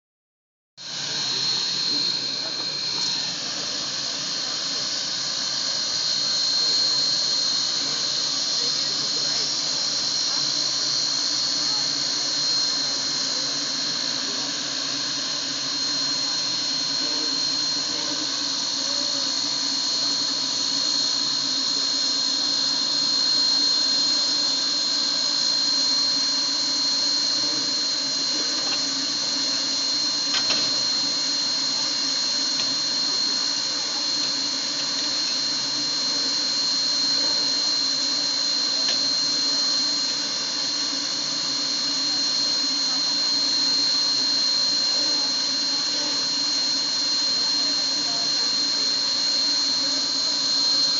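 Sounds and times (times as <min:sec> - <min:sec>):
steam hissing: 0:00.8 - 0:20.3
high steady whine: 0:00.8 - 0:50.9.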